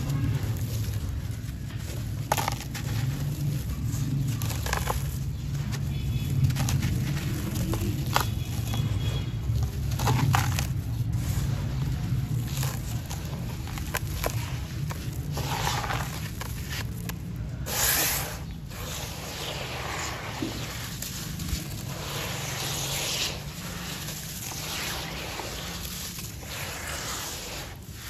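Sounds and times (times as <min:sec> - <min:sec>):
wet grit crunching and scraping: 0:00.0 - 0:28.0
rush of grit: 0:06.3 - 0:28.0.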